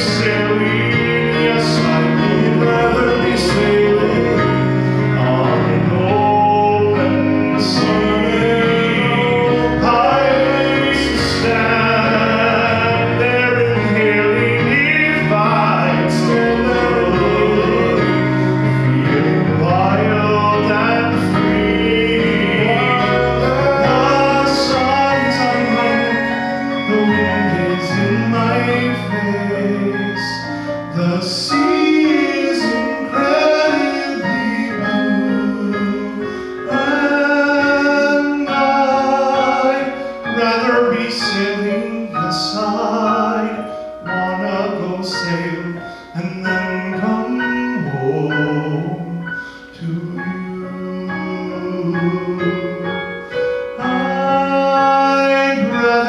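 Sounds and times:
electric keyboard playing: 0.0s - 56.0s
man singing: 0.0s - 56.0s.

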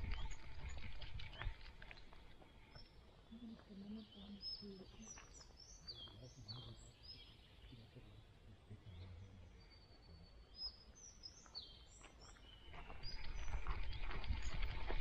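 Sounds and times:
faint songbird calls: 0.0s - 14.9s.

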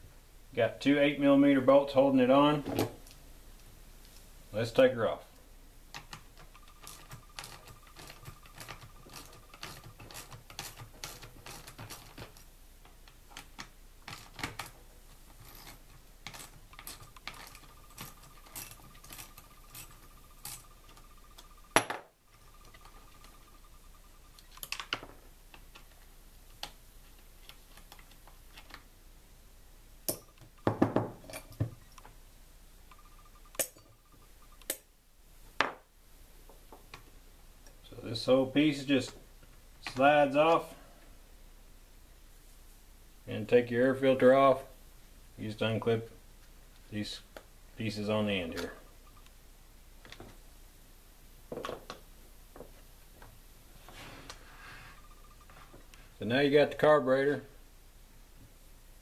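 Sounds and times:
hand tool clicking on bolts: 6.0s - 21.4s.

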